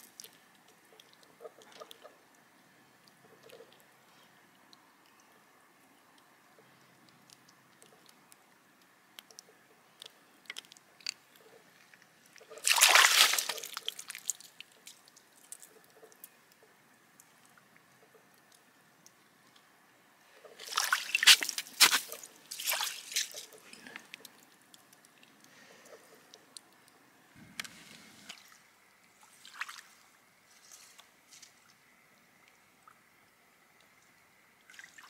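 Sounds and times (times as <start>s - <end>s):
water sloshing and splashing: 9.4s - 16.6s, 20.4s - 26.6s, 27.6s - 31.8s, 34.6s - 35.0s.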